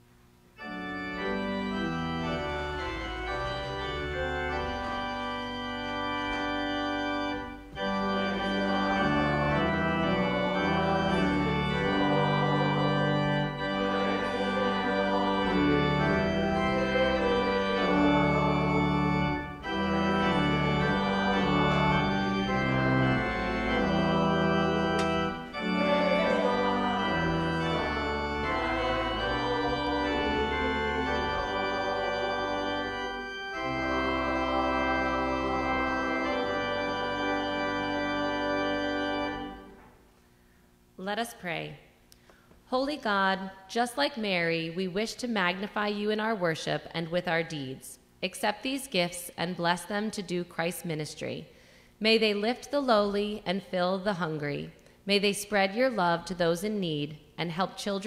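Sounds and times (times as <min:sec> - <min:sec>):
pipe organ playing chords: 0:00.6 - 0:40.0.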